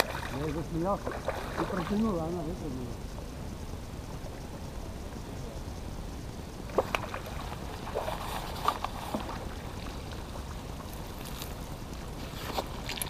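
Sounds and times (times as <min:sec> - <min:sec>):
water splashing: 0:00.0 - 0:02.9, 0:06.7 - 0:13.0.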